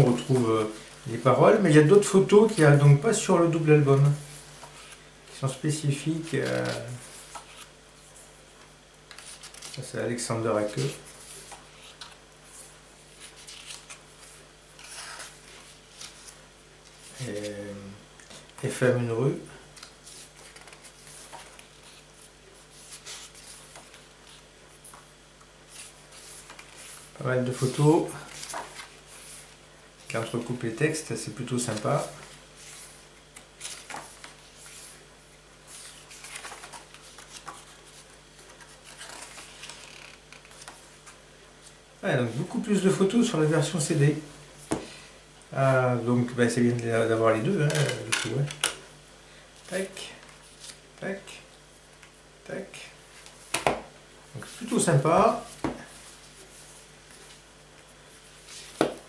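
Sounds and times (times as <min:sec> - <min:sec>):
faint steady hum: 0:00.0 - 0:59.0
paper pages rustling: 0:03.9 - 0:17.6, 0:19.7 - 0:30.6, 0:31.4 - 0:43.0, 0:47.6 - 0:48.6, 0:53.1 - 0:59.0.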